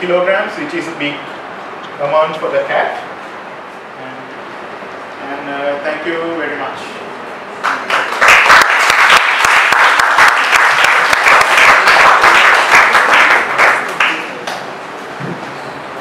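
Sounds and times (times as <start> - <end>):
audience applauding: 7.6 - 14.7.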